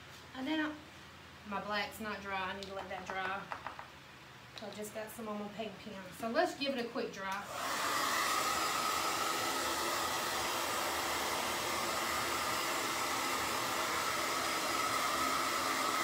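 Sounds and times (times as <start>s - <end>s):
electric dryer blowing air: 7.4s - 16.0s.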